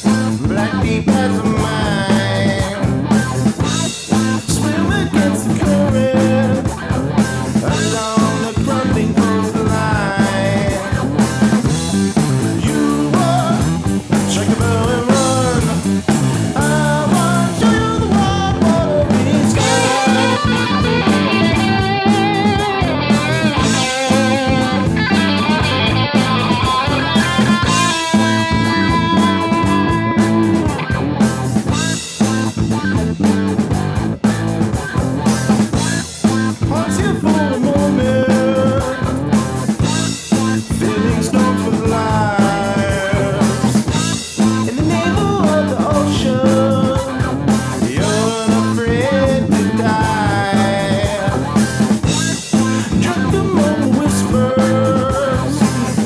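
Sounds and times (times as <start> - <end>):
high-pitched guitar lines: 0.0 - 56.0
rock music with guitars: 0.0 - 56.0.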